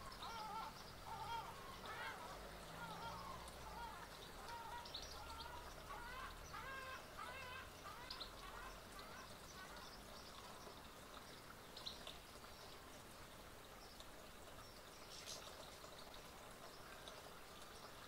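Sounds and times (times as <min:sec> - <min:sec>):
low wavering bird calls: 0:00.0 - 0:10.9
background hiss: 0:00.0 - 0:18.0.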